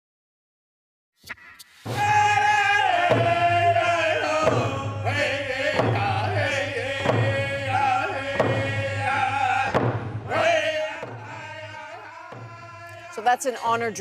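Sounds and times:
even drum beat: 1.8 - 14.0
man singing: 1.9 - 14.0.

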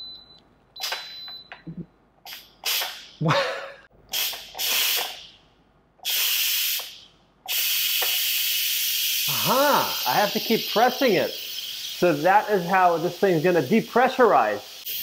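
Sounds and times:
high beep: 0.0 - 1.8
pressure cooker venting steam: 2.3 - 3.1, 4.1 - 5.4, 6.0 - 15.0.

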